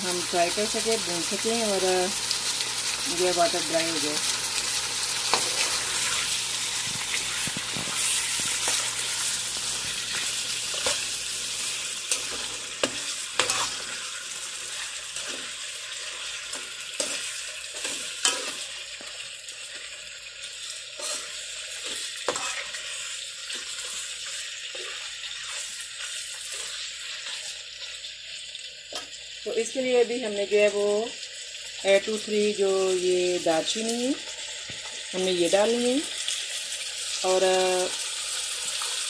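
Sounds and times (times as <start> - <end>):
meat sizzling in oil: 0.0 - 39.0
spoon scraping a pan: 5.1 - 19.9, 20.6 - 27.9.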